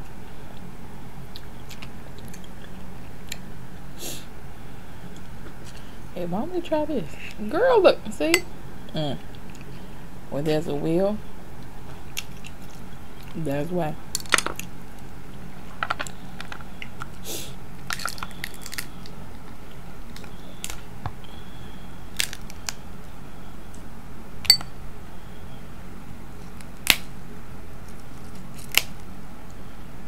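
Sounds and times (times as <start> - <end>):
low hum: 0.0 - 30.0
crab shells cracking: 12.1 - 13.4, 14.1 - 15.1, 17.8 - 20.9, 22.1 - 22.8, 26.4 - 27.1, 27.8 - 29.1.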